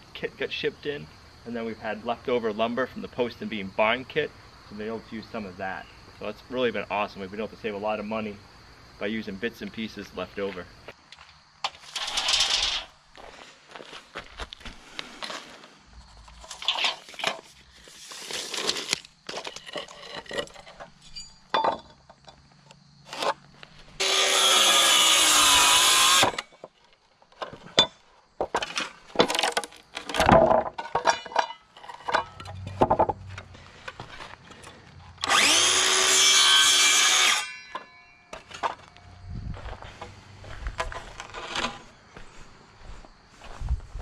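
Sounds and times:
knocks and scrapes of tools: 11.6s - 12.9s, 15.2s - 23.4s, 26.2s - 35.4s, 37.2s - 39.0s, 39.8s - 41.9s
saw motor spinning down: 24.0s - 26.4s, 35.2s - 37.5s
circular saw cutting wood: 24.0s - 26.5s, 35.2s - 37.9s.

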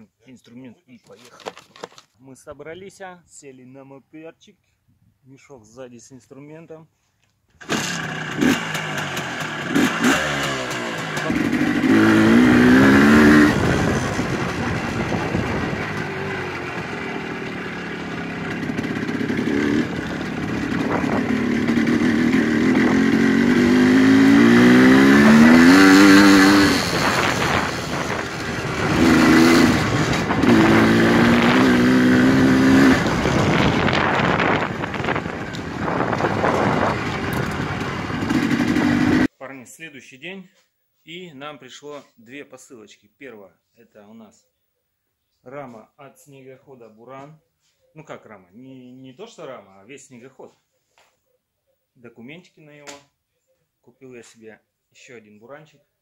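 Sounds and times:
motorcycle engine revving through gears: 7.6s - 39.3s.

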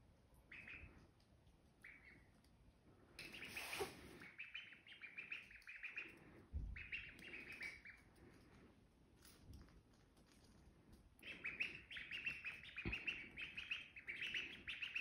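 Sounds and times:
ducklings peeping: 0.3s - 2.5s, 3.2s - 8.6s, 11.0s - 15.0s.

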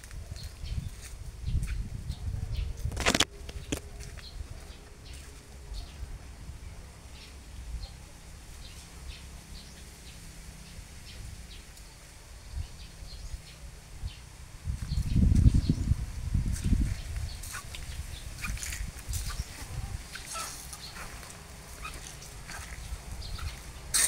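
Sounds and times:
small birds chirping: 0.0s - 6.1s, 6.7s - 24.0s
steady low rumble: 10.8s - 24.0s.

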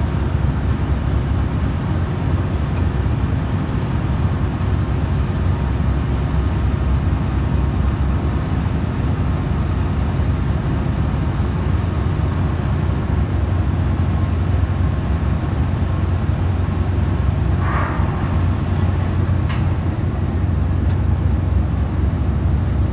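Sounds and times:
faint hum: 0.0s - 22.9s
heavy machinery droning: 11.5s - 22.9s.

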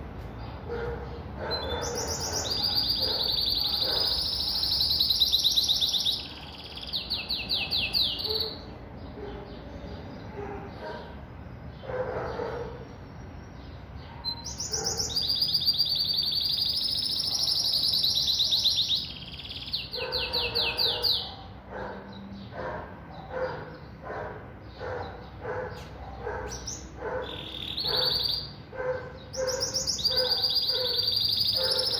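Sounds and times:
bird singing fast trills: 1.5s - 8.7s, 12.9s - 21.4s, 24.6s - 31.9s.

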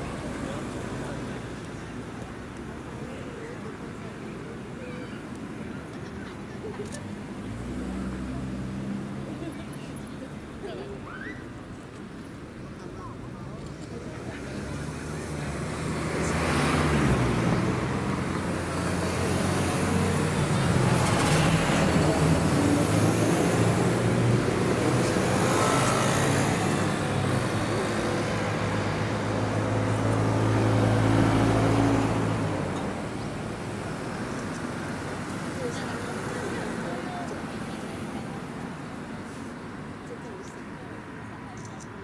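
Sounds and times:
tyre and road noise: 0.0s - 42.0s
vehicles passing: 0.0s - 42.0s.

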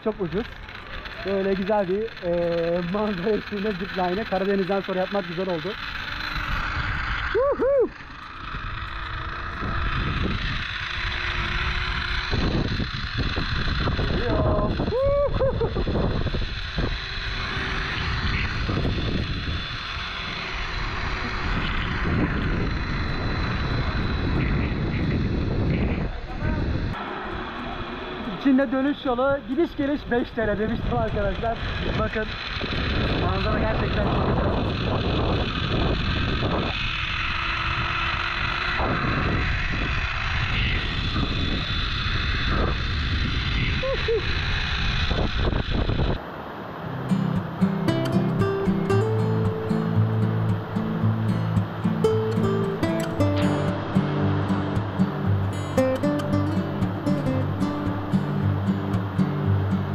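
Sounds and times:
zipline pulleys running on cable: 0.0s - 46.2s
wind buffeting microphone: 0.0s - 46.3s
person exclaiming: 7.3s - 8.0s, 14.2s - 15.7s.

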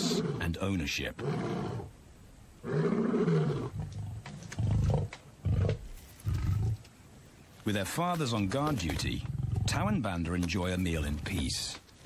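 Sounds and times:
lion roaring: 0.0s - 0.5s, 2.6s - 6.8s, 9.2s - 10.0s
lion grunting: 0.0s - 1.9s, 2.6s - 6.8s, 8.8s - 10.0s.

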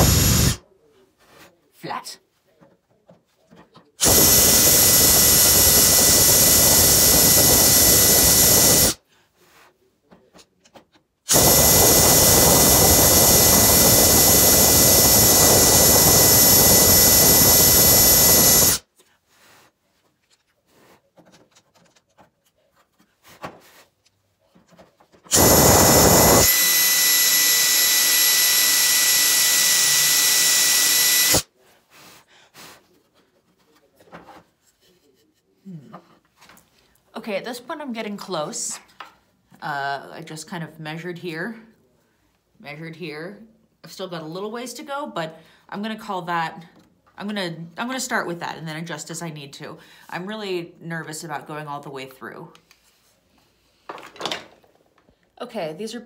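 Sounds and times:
cordless drill boring holes: 0.0s - 0.6s, 4.0s - 9.0s, 11.3s - 18.8s, 25.3s - 31.5s.

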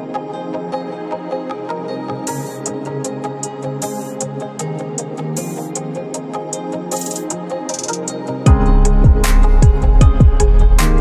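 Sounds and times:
background music with light beat: 0.0s - 11.0s.

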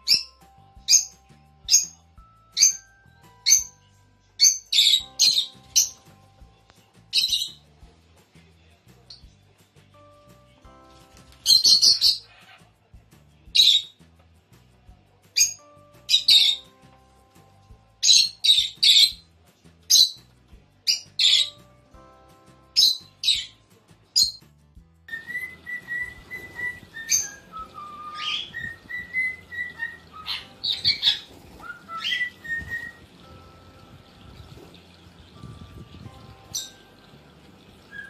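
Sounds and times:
lovebirds squawking: 11.4s - 12.7s, 13.6s - 13.9s, 15.4s - 16.7s, 20.9s - 21.6s, 25.2s - 33.2s
trickle of water: 30.8s - 38.0s.

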